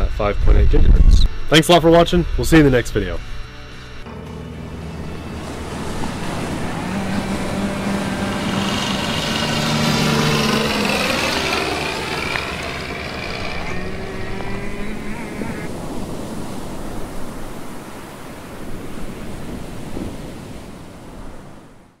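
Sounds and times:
motorboat engine passing: 4.0s - 17.6s
ocean waves: 4.0s - 22.0s.

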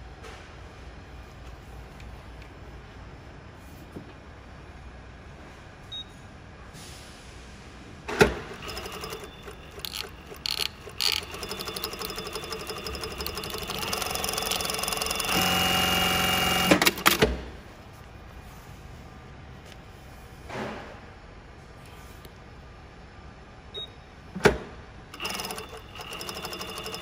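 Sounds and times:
sewing machine stitching: 8.4s - 17.2s, 25.2s - 27.0s.

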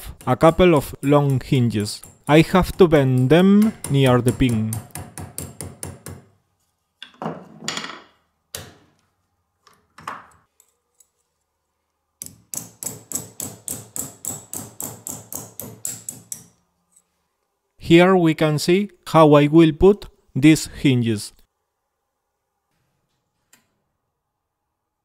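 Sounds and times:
hammer tapping steel on anvil: 0.0s - 6.2s, 12.2s - 16.6s.

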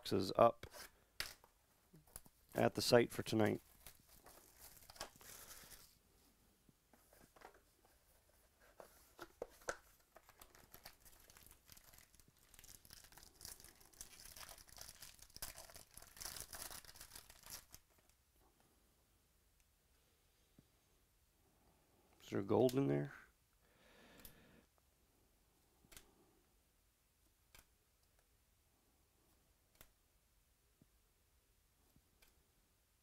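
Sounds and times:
plastic wrap crinkling and tearing: 3.6s - 6.0s, 10.0s - 18.1s.

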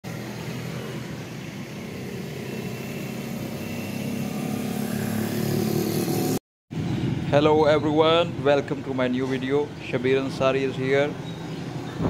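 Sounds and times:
vehicle engine humming: 0.0s - 7.3s.

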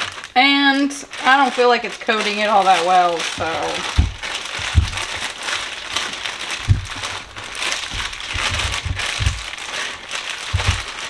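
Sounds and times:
plastic bag crinkling: 0.0s - 11.0s
dull low thumps: 3.3s - 11.0s.

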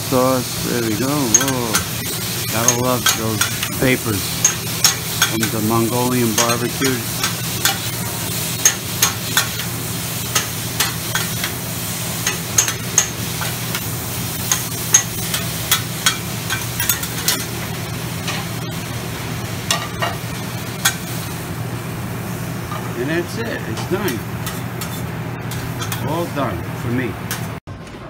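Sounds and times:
food sizzling on griddle: 0.0s - 27.6s
metal spatulas scraping and clacking: 1.2s - 1.9s, 2.6s - 3.8s, 6.3s - 9.7s, 23.7s - 26.2s.

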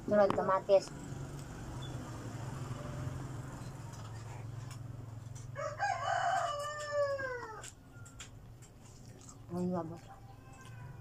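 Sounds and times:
rooster crowing: 5.4s - 8.0s.

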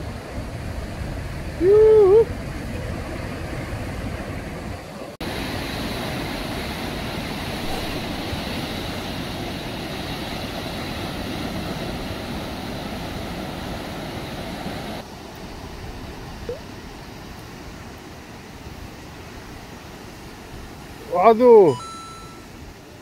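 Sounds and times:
wind on microphone: 0.0s - 15.0s
heavy surf breaking: 0.0s - 16.4s.

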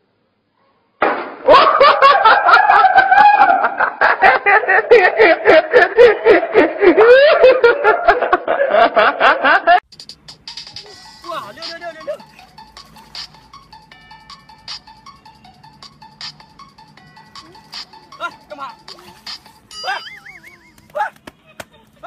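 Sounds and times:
person laughing hard: 1.5s - 9.8s, 19.7s - 22.0s.

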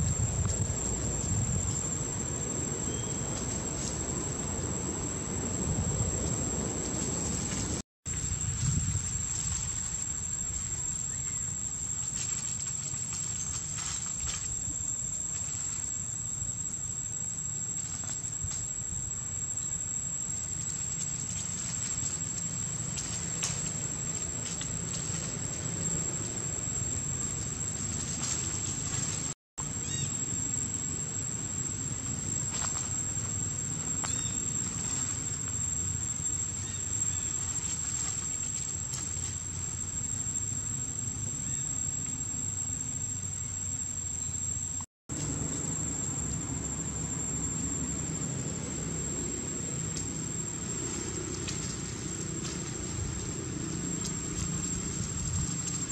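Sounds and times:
high-pitched insect trill: 0.0s - 55.9s
faint ticks and rustles: 6.8s - 16.3s, 19.6s - 29.4s, 32.0s - 40.3s, 49.9s - 55.9s.

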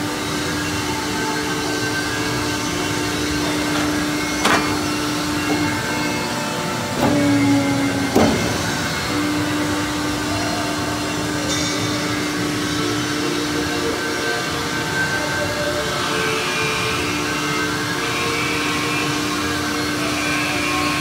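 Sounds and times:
machine press humming: 2.3s - 10.2s.

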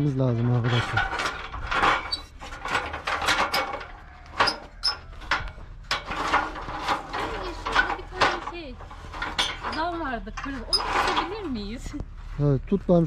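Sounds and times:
dry branches rustling and crackling: 5.1s - 12.5s.

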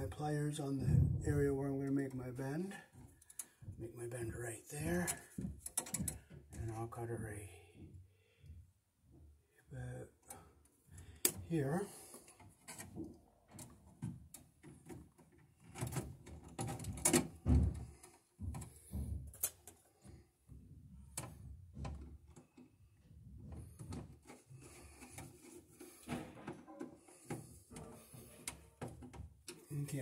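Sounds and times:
tools tapping on metal panel: 5.3s - 6.6s, 23.5s - 29.7s.

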